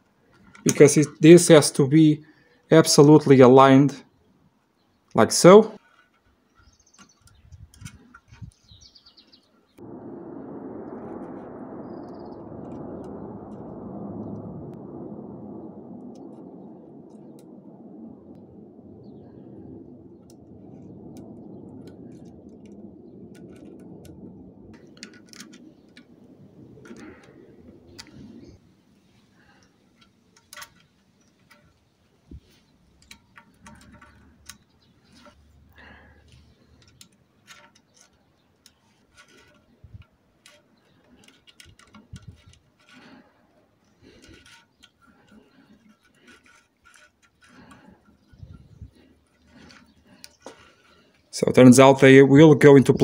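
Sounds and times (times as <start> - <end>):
small metal parts clicking: 29.5 - 31.9, 32.6 - 51.2.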